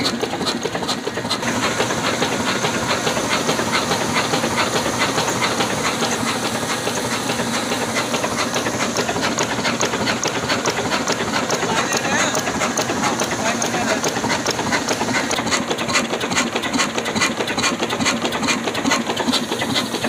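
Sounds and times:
diesel engine chugging: 0.0 - 20.0
constant hissing rush: 1.1 - 15.4.

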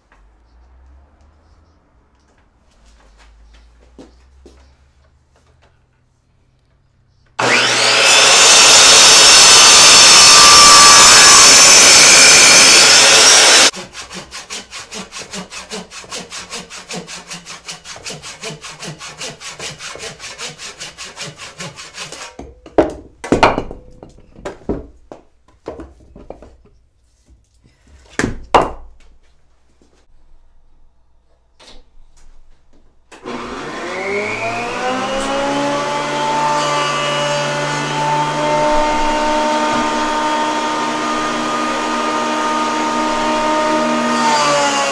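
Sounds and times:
handsaw ripping log: 7.4 - 22.4
miter saw cutting log: 7.4 - 22.4, 33.2 - 44.9.

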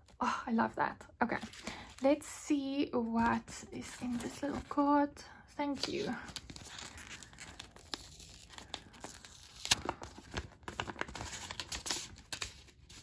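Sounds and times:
paper crinkling and tearing: 5.8 - 13.0.

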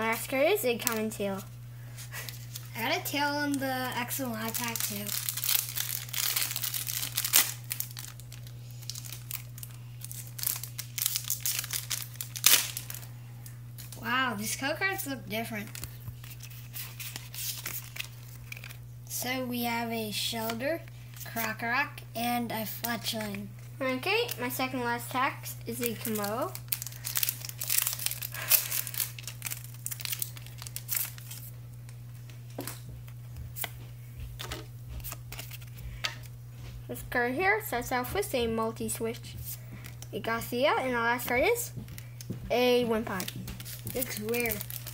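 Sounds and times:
foil wrapper crinkling: 0.7 - 18.9, 24.2 - 32.8, 34.4 - 36.3, 41.3 - 44.9
cards clicking and rustling: 4.4 - 13.0, 15.6 - 18.8, 43.1 - 44.9.

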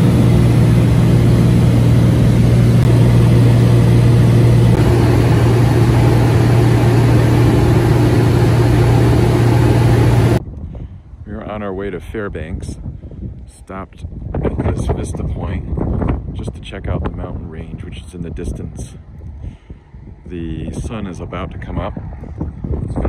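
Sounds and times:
light aircraft engine droning: 0.0 - 23.0.

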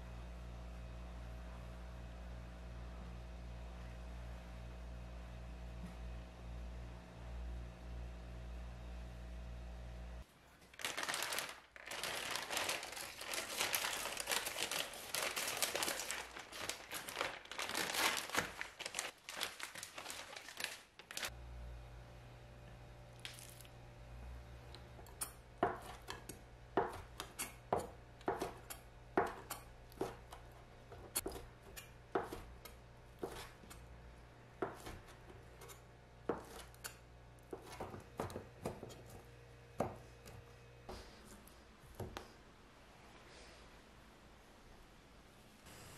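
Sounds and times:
plastic packaging crinkling: 10.6 - 21.3, 23.2 - 23.7
knife chopping on wooden board: 25.6 - 33.8, 34.6 - 36.9, 37.5 - 39.2, 39.8 - 40.4.

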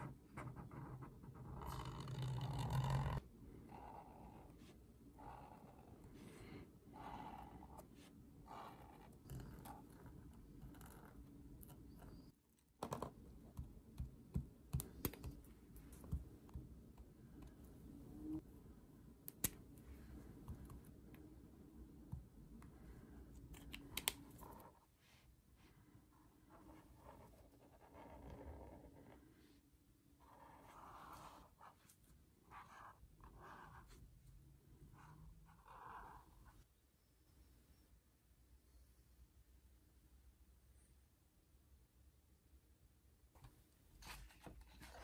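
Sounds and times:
marker scratching on paper: 30.3 - 31.9, 32.5 - 34.0, 35.0 - 36.6.

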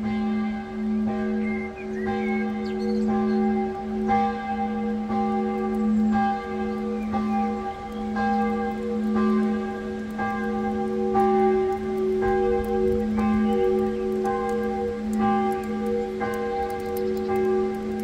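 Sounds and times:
church bells ringing: 0.0 - 18.0.

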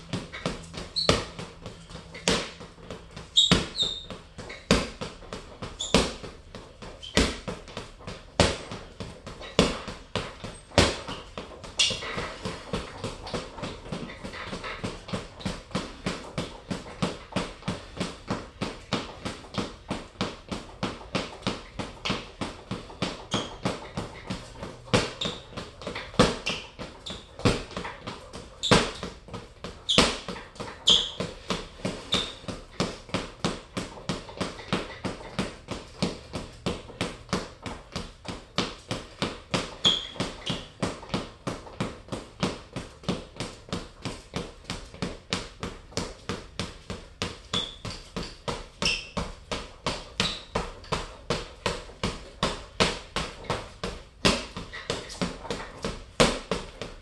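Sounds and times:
boxing gloves punching heavy bag: 0.0 - 57.0.

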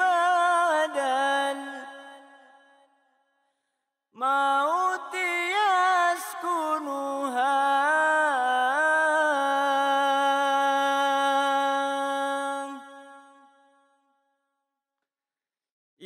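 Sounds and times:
person singing devotional song: 0.0 - 3.0, 4.2 - 13.8.

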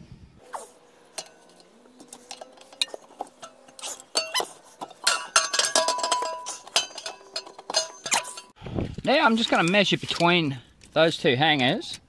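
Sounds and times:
metal clinking and knocking: 1.0 - 8.6.

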